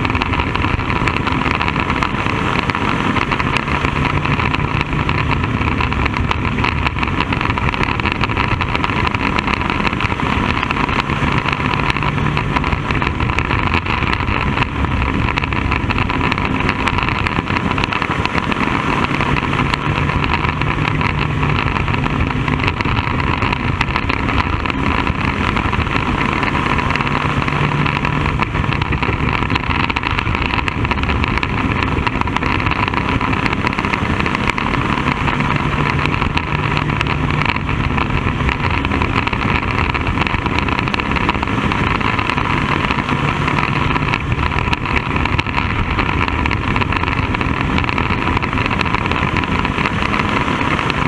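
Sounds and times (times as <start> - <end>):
race car engine running: 0.0 - 51.0.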